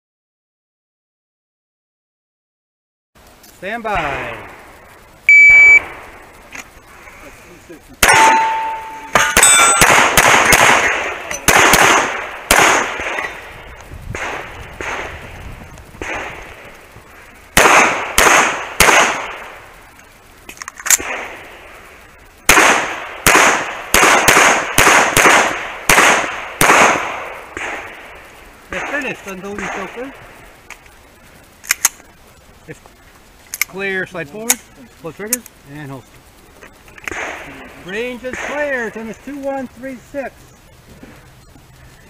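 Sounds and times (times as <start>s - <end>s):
steady ringing tone: 4.8s - 7.0s, 8.0s - 10.0s
pistol shots: 8.0s - 13.4s, 14.1s - 15.2s, 16.0s - 16.5s, 17.6s - 19.6s, 22.5s - 28.1s, 28.7s - 30.1s, 37.0s - 37.6s.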